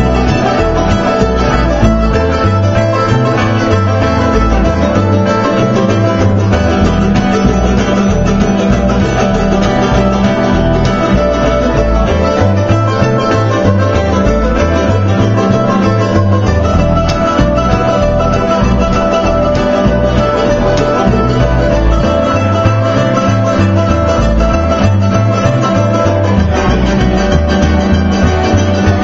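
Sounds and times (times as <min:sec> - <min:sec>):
acoustic guitar: 0:00.0 - 0:29.0
mandolin: 0:00.0 - 0:29.0
upright bass: 0:00.0 - 0:29.0.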